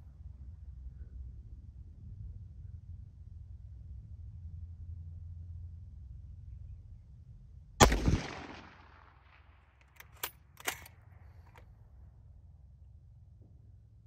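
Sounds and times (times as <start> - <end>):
rifle shot echoing: 7.8 - 11.0
sharp clicks: 9.8 - 11.6.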